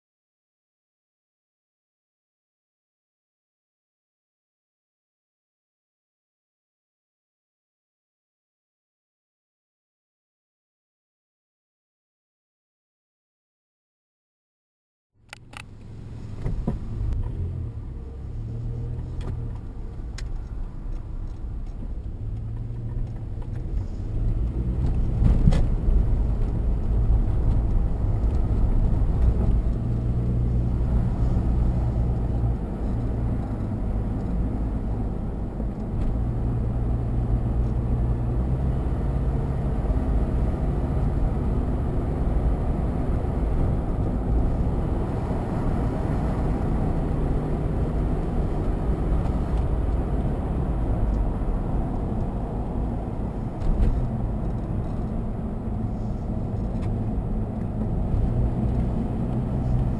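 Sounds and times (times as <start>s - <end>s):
tyre road noise: 15.2s - 59.9s
car engine humming: 15.3s - 59.9s
brief thump: 16.4s - 16.9s.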